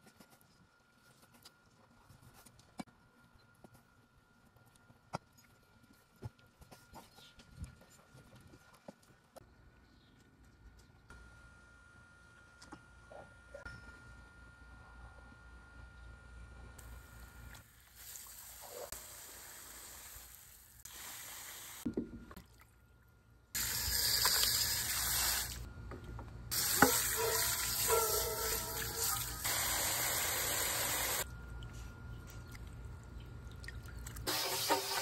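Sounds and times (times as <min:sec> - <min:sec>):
hose water spraying into bowl: 0:23.6 - 0:25.7, 0:26.5 - 0:31.2, 0:34.3 - 0:35.0.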